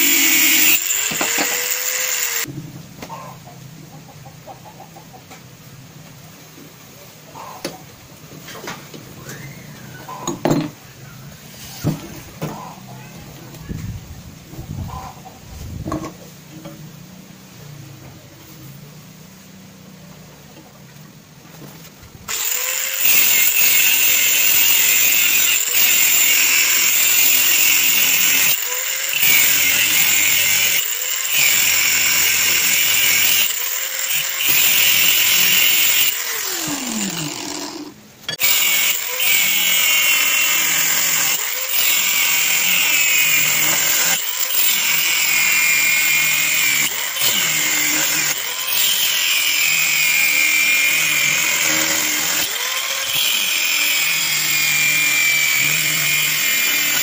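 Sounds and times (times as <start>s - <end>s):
angle grinder cutting steel: 0.0s - 2.5s, 22.3s - 57.0s.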